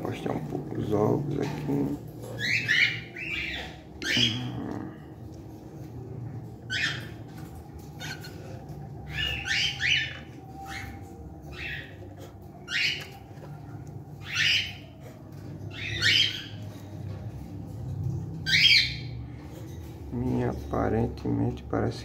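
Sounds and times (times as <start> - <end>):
cockatiels squawking: 2.0 - 4.7, 6.6 - 16.8, 18.4 - 19.7.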